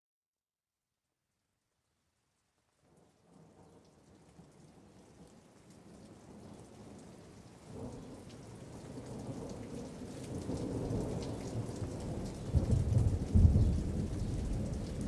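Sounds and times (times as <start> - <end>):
rain on wet pavement: 2.6 - 15.0
low thunder rumble: 8.9 - 15.0.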